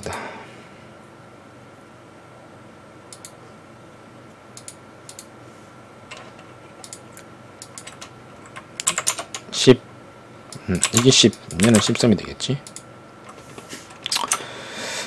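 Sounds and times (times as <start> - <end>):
faint steady hum: 0.0 - 15.0
mouse and keyboard clicks: 10.8 - 12.0, 12.6 - 14.4.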